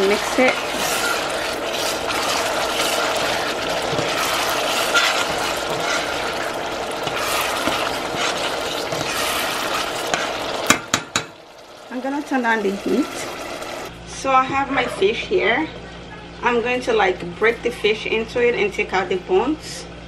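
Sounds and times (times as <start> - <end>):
metal spoon stirring pot: 0.0 - 11.4
pot bubbling sizzle: 0.0 - 13.9.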